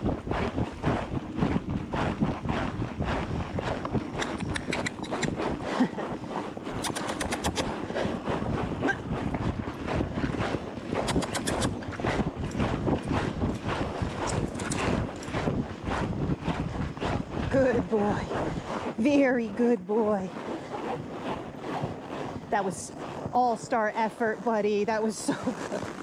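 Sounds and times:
horse hoofbeats: 0:00.0 - 0:26.0
wind buffeting microphone: 0:00.0 - 0:26.0
quick jingling ticks: 0:04.2 - 0:05.3.

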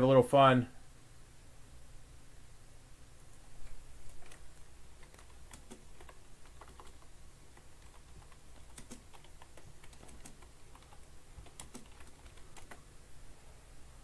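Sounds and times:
low steady hum: 0:00.0 - 0:14.0
keyboard keystrokes clicking: 0:04.0 - 0:12.8.

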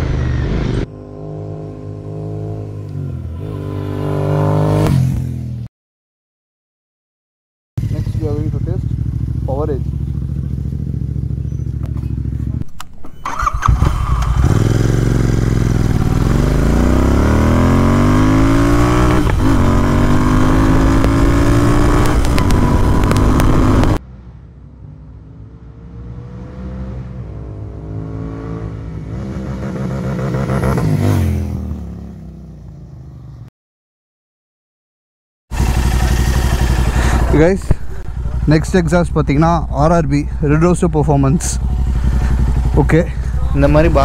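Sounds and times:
motorcycle engine passing on road: 0:00.0 - 0:05.6, 0:07.8 - 0:12.6, 0:13.2 - 0:24.0, 0:26.0 - 0:33.5, 0:35.5 - 0:44.0
motorcycle accelerating through gears: 0:07.8 - 0:12.6, 0:13.3 - 0:24.0, 0:25.9 - 0:33.5, 0:35.5 - 0:44.0.

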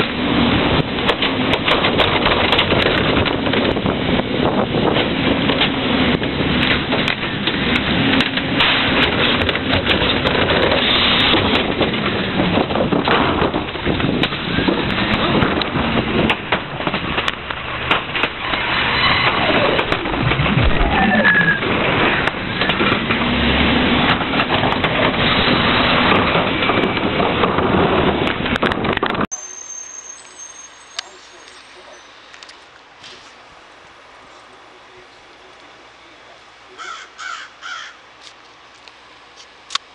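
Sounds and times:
garbage truck running: 0:00.0 - 0:36.8
bins knocking and clattering: 0:01.0 - 0:03.9, 0:04.9 - 0:20.8, 0:21.7 - 0:29.3.

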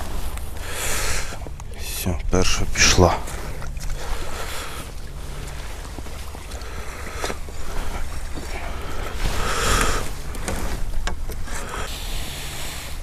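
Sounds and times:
water lapping at bank: 0:00.0 - 0:13.0
wind rumbling on microphone: 0:00.0 - 0:13.0.

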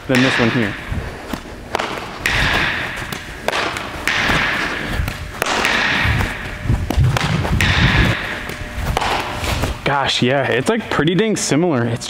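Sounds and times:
baseball hitting leather glove: 0:00.2 - 0:09.8
shoes scuffing on artificial turf: 0:06.2 - 0:09.8.

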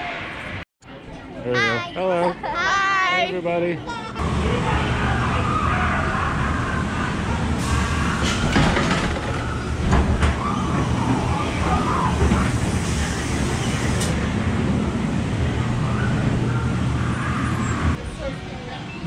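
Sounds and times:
ride car rumbling on track: 0:04.2 - 0:19.0.

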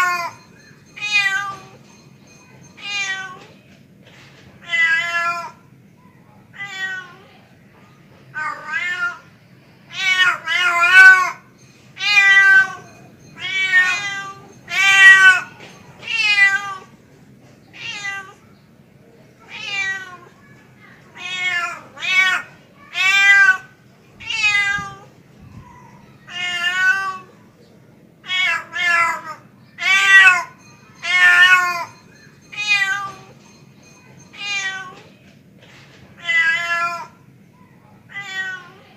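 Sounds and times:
cat meowing: 0:06.5 - 0:07.3, 0:08.4 - 0:09.3, 0:12.0 - 0:16.9, 0:17.8 - 0:18.4, 0:19.5 - 0:20.3, 0:21.2 - 0:25.1, 0:26.3 - 0:27.3, 0:34.4 - 0:35.1, 0:36.2 - 0:37.2, 0:38.1 - 0:38.9.

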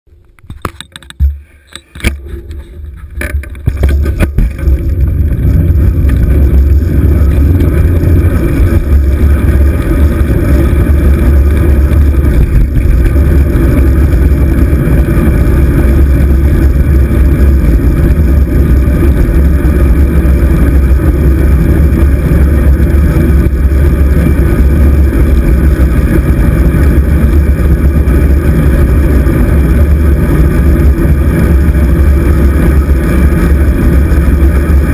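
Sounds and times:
wind buffeting microphone: 0:02.2 - 0:34.9.

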